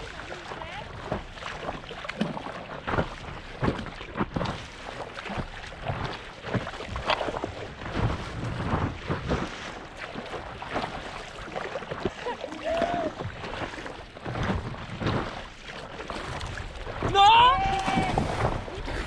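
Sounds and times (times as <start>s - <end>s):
small waves splashing: 0.0s - 19.0s
wind buffeting microphone: 16.2s - 19.0s.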